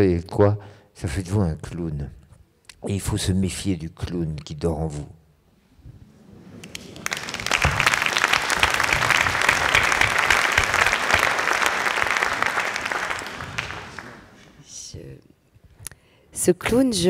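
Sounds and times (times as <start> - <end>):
audience applauding: 6.6 - 14.6.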